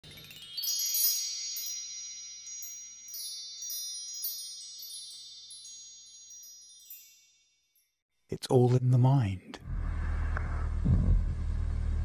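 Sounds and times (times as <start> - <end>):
chimes tinkling: 0.0 - 8.1.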